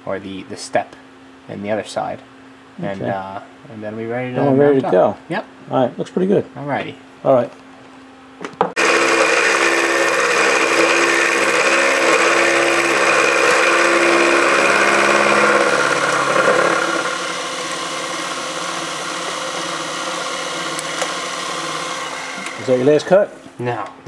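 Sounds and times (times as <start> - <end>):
end mill cutting metal: 8.8 - 23.0
mill motor whine: 8.8 - 23.0.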